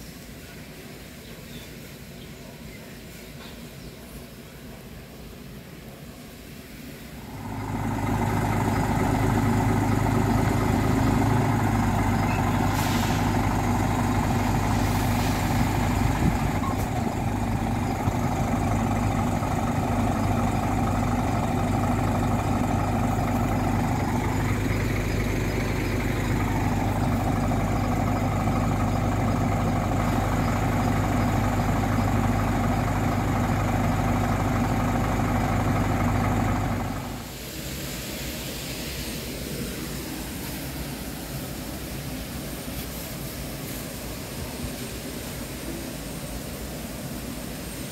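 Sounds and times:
truck diesel engine idling: 7.2s - 37.5s.

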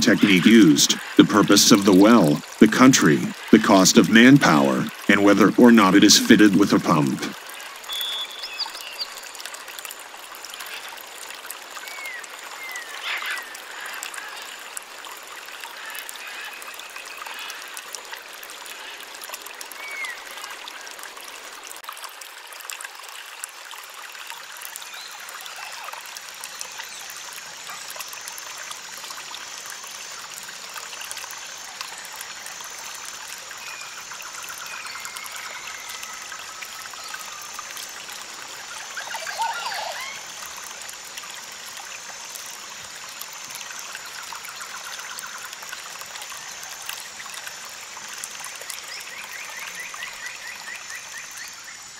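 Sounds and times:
water running and trickling: 0.0s - 51.9s
faint chirps: 38.5s - 40.4s.

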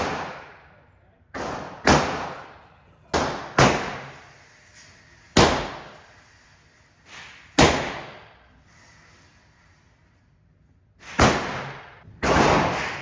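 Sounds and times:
gunshots echoing indoors: 0.0s - 4.2s, 5.4s - 6.1s, 7.5s - 8.4s, 11.0s - 13.0s.

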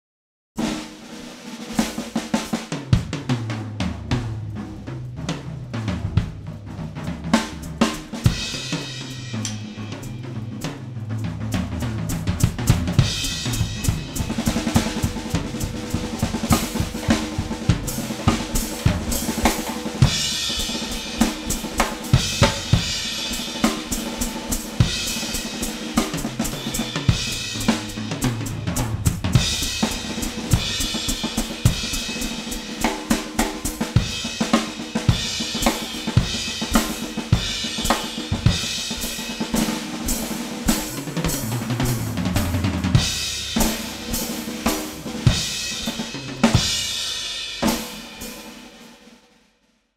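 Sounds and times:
drum kit playing busy rhythm: 0.6s - 49.1s
cymbal crashes: 7.6s - 11.0s, 12.9s - 33.0s.

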